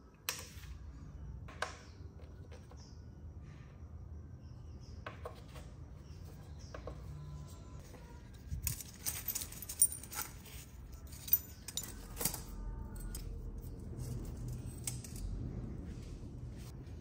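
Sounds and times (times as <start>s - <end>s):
low steady hum: 0.0s - 17.0s
metal parts clinking and rattling: 8.2s - 15.5s.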